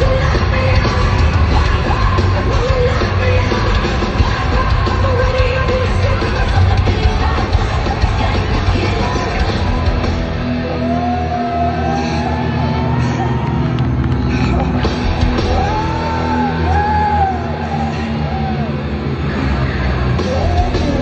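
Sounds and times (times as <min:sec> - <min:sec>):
person singing: 0:00.0 - 0:12.4, 0:20.2 - 0:21.0
heavy metal band playing live: 0:00.0 - 0:21.0.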